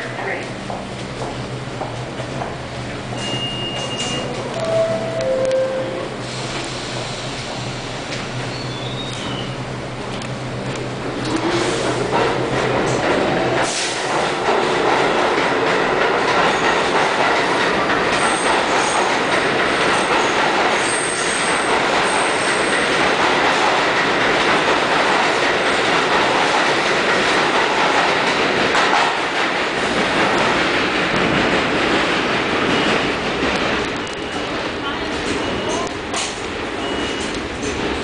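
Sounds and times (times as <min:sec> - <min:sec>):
train wheels rumbling on rail: 0:00.0 - 0:38.0
high wheel squeal: 0:03.1 - 0:04.4, 0:08.5 - 0:09.6, 0:36.8 - 0:37.4.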